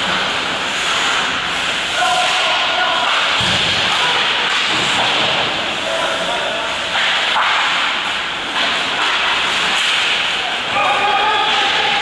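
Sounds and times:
skates scraping on ice: 0.0 - 3.4.

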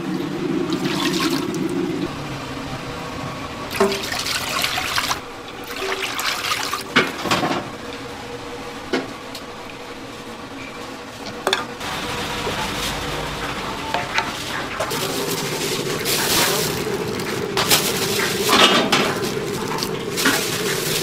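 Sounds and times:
water pouring into metal pan: 0.6 - 2.0, 3.7 - 7.0, 12.0 - 21.0.

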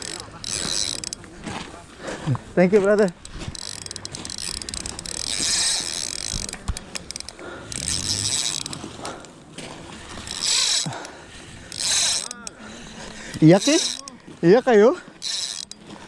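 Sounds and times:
fishing reel gears whirring: 0.0 - 1.2, 2.9 - 9.4, 10.1 - 16.0
fishing reel clicks: 0.0 - 1.3, 3.0 - 9.3, 10.2 - 14.2, 15.1 - 16.0.

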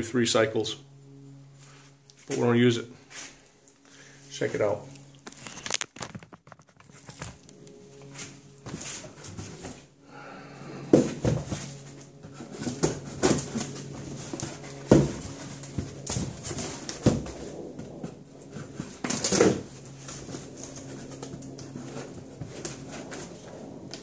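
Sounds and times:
steady low hum: 0.0 - 24.0
box knocking and scraping: 10.9 - 21.0.

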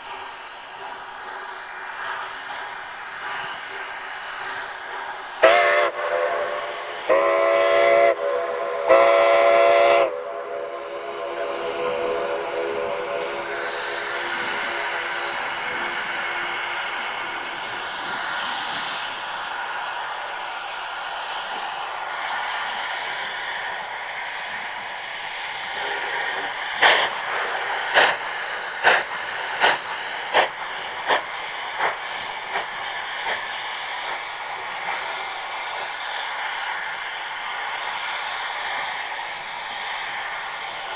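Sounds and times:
steady steam hiss: 0.0 - 40.9
steam locomotive chuffing: 0.0 - 40.9
steam locomotive whistle blasts: 5.4 - 16.8.

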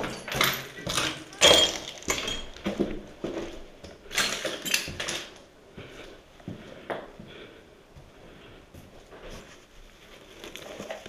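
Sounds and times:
footsteps on rubble: 0.0 - 7.4.

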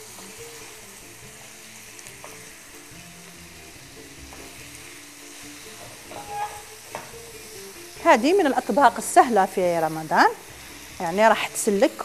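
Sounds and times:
meat sizzling in a frying pan: 0.0 - 12.0
wooden spatula scraping pan: 5.7 - 7.1.

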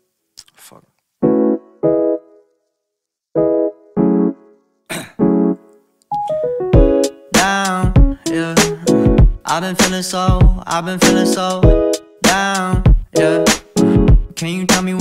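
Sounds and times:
backing music with low beat: 6.1 - 15.0.

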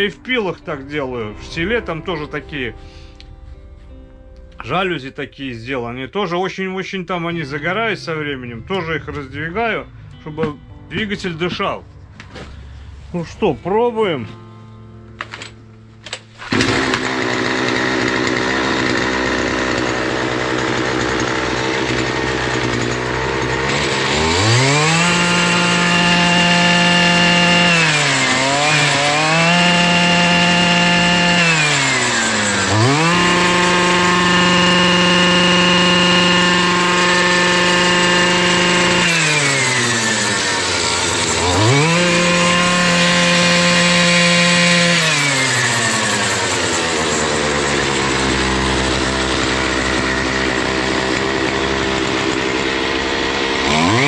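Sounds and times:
brush cutter engine revving: 15.2 - 54.0.

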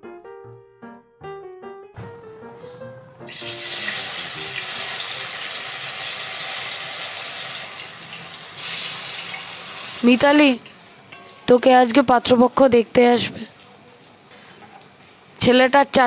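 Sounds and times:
light music: 0.0 - 6.9
food sizzling in a wok: 3.3 - 10.8.

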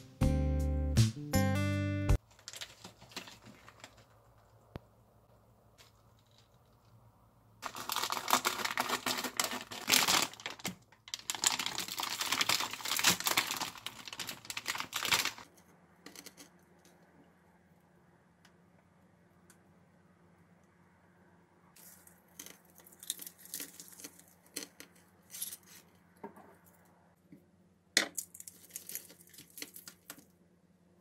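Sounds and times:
plastic bag crinkling: 2.2 - 4.4, 7.6 - 15.5, 28.3 - 30.2.

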